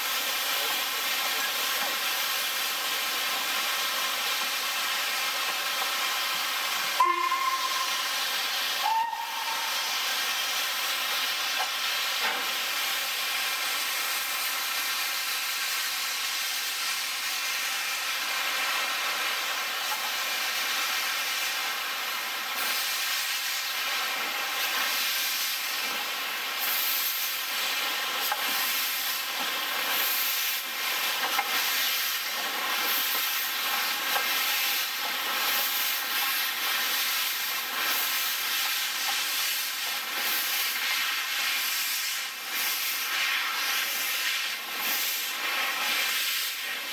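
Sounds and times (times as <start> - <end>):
steam locomotives hissing: 0.0 - 46.9
steam whistle toots: 7.0 - 10.6.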